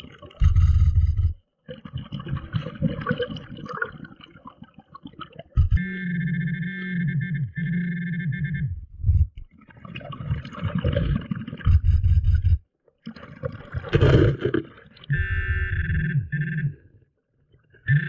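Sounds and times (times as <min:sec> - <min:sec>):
metal detector buzzing tone: 0:05.6 - 0:09.2, 0:15.1 - 0:16.8.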